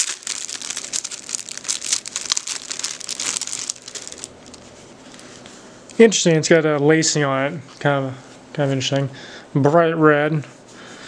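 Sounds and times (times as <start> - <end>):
plastic bag crinkling: 0.0 - 5.3.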